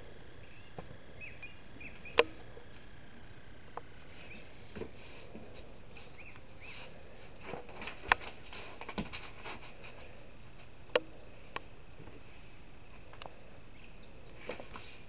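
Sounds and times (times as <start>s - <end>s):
paper rustling and creasing: 6.7s - 10.2s.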